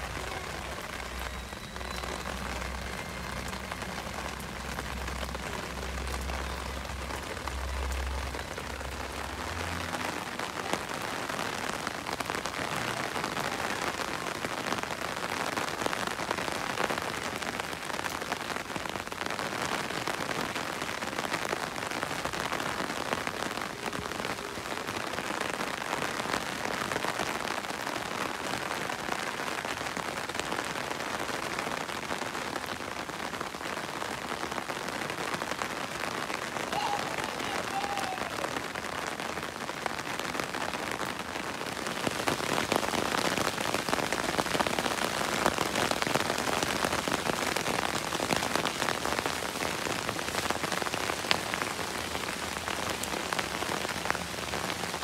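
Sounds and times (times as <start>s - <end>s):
rain splashing into water: 0.0s - 55.0s.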